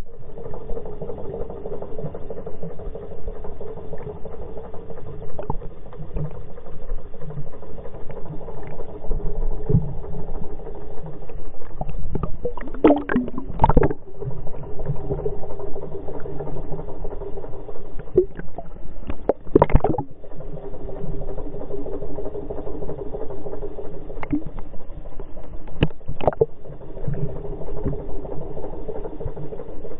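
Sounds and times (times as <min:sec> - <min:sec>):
boat engine hum underwater: 0:00.0 - 0:29.9
bursts of water noise: 0:11.8 - 0:14.3, 0:18.0 - 0:20.1, 0:25.8 - 0:26.5.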